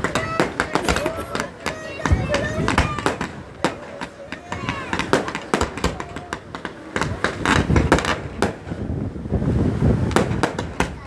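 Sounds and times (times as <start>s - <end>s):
fireworks bangs and crackles: 0.0s - 11.0s
deep rumbling booms: 4.4s - 11.0s.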